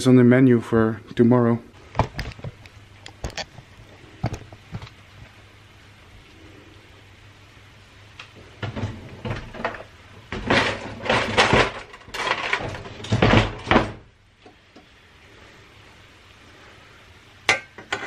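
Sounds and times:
kitchen items clattering: 0:08.6 - 0:14.1.

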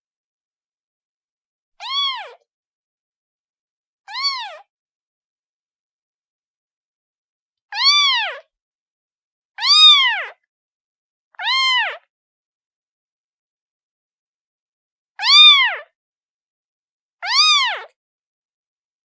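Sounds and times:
kitten meowing: 0:01.8 - 0:02.4, 0:04.1 - 0:04.7, 0:07.8 - 0:08.4, 0:09.6 - 0:10.4, 0:11.4 - 0:12.1, 0:15.2 - 0:15.9, 0:17.2 - 0:17.9.

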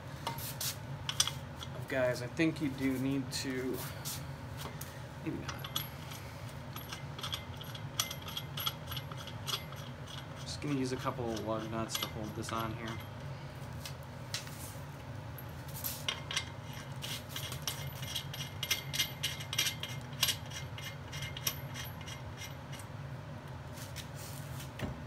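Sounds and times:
steady low hum: 0:00.0 - 0:25.0
lug nuts clicking and clinking: 0:05.3 - 0:13.2, 0:16.0 - 0:22.9.

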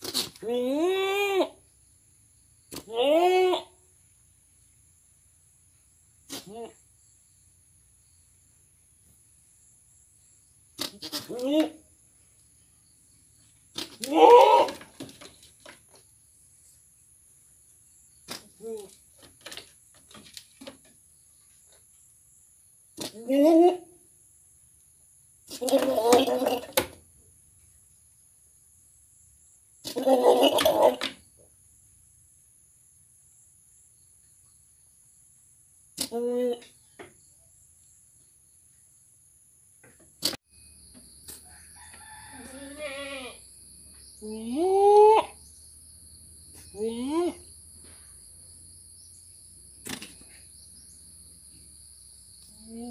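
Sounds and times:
goat bleating: 0:02.8 - 0:03.7, 0:10.8 - 0:11.8, 0:14.0 - 0:14.9, 0:25.5 - 0:26.8, 0:42.4 - 0:43.4
high insect drone: 0:40.5 - 0:52.9.

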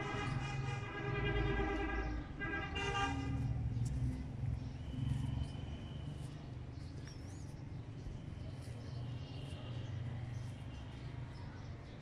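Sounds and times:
vehicle horn honking: 0:00.0 - 0:03.5.

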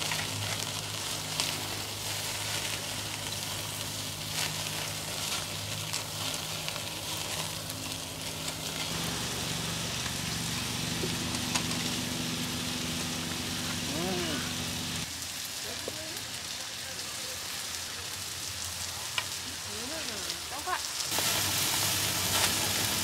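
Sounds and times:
low steady hum: 0:00.0 - 0:15.1
food sizzling in a hot pan: 0:00.0 - 0:23.0.

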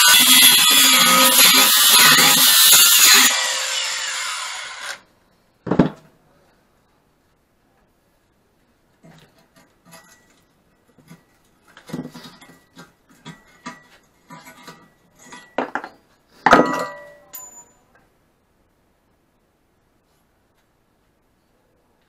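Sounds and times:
ringing metal clang: 0:16.5 - 0:17.9.

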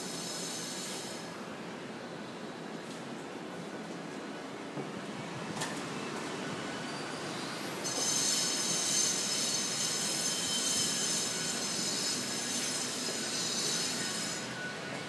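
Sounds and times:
shrill high-pitched squeal: 0:07.8 - 0:14.7.

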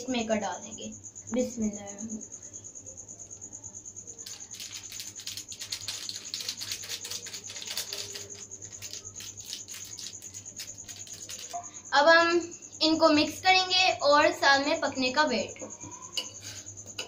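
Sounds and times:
plastic sachet crinkling: 0:04.2 - 0:11.6.

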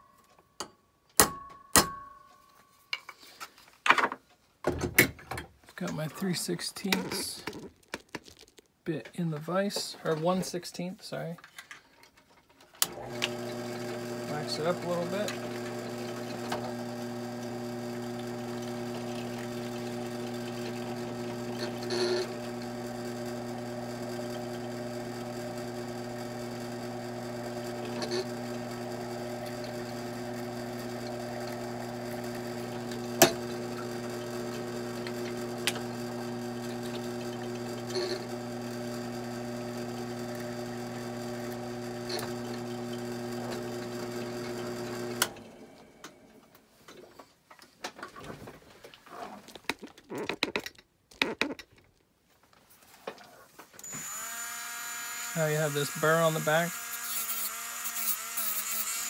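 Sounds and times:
drill press motor running: 0:12.8 - 0:46.1, 0:53.8 - 0:59.0
drill bit cutting metal: 0:12.9 - 0:45.3, 0:53.8 - 0:59.0.

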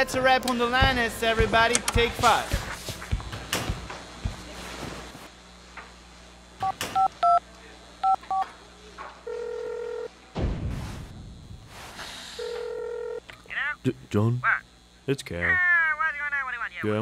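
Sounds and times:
telephone ringing tone: 0:09.2 - 0:10.1, 0:12.4 - 0:13.2.

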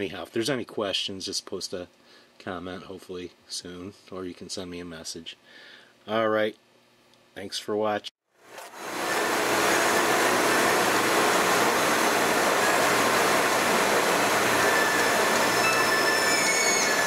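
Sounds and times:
tyres hissing on wet road: 0:08.8 - 0:17.0.

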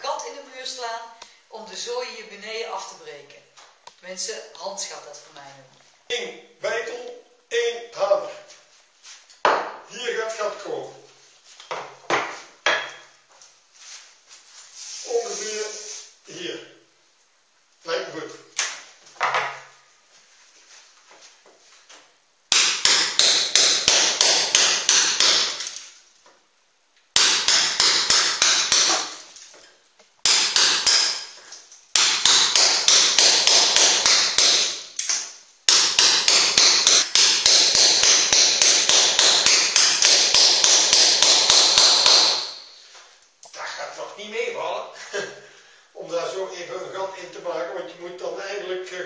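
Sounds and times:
hammer striking chisel on wall: 0:22.5 - 0:25.7, 0:27.2 - 0:29.2, 0:30.2 - 0:31.3, 0:31.9 - 0:34.9, 0:35.7 - 0:42.6.

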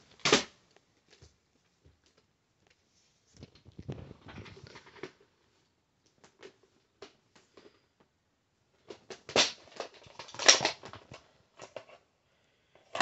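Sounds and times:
plastic cases clacking: 0:08.8 - 0:12.0.

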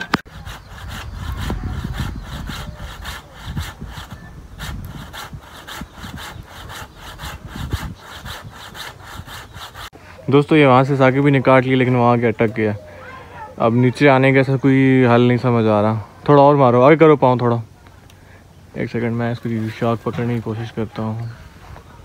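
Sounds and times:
hand saw cutting tree branch: 0:00.0 - 0:09.9.

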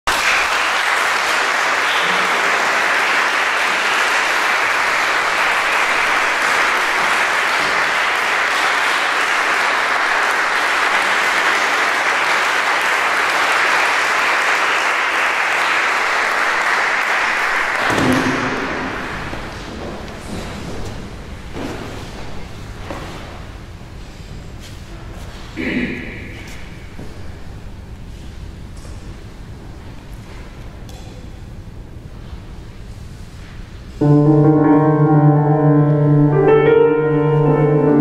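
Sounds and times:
audience applauding: 0:00.0 - 0:19.5.

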